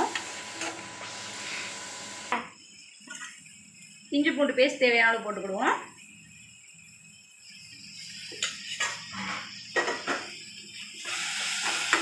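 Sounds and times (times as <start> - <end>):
paste sizzling: 0.0 - 12.0.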